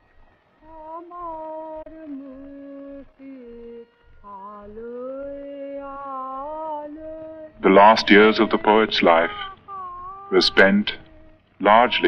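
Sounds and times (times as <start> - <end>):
person singing slow melody: 0.6 - 12.0.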